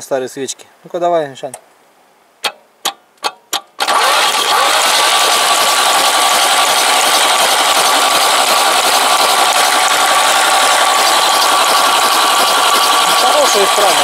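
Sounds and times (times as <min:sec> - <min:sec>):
starter motor cranking engine: 0:03.5 - 0:14.0.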